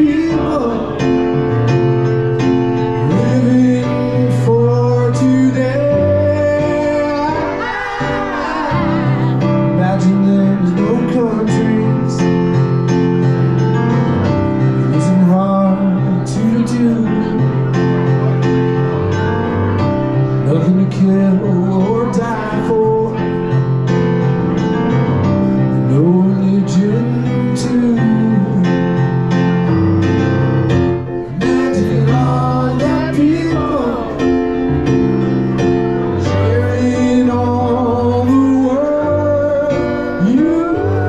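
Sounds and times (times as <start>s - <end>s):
person singing over guitar: 3.0s - 12.2s.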